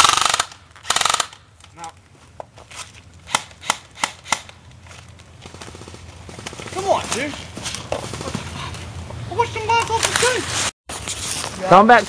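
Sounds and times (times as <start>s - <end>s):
airsoft rifle full-auto bursts: 0.0s - 1.3s.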